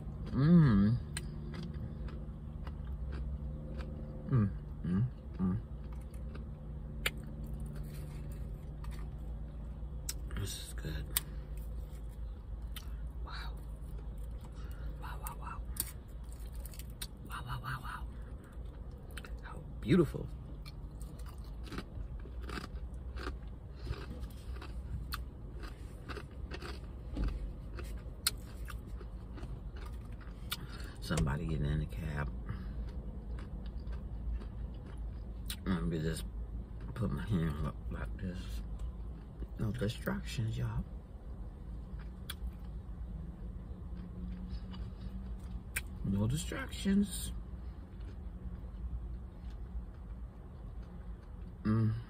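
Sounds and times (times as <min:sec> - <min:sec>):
person chewing food: 0:00.0 - 0:19.5, 0:20.3 - 0:31.3, 0:31.9 - 0:35.7, 0:41.7 - 0:46.0, 0:47.6 - 0:51.9
person humming mm: 0:00.3 - 0:01.1, 0:04.3 - 0:05.6, 0:51.6 - 0:52.0.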